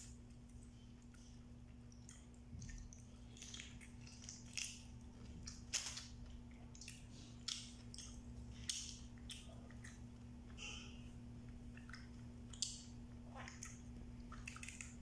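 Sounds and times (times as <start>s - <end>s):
chewing and sucking: 0.0s - 10.6s, 11.4s - 15.0s
crab shells cracking: 3.3s - 6.2s.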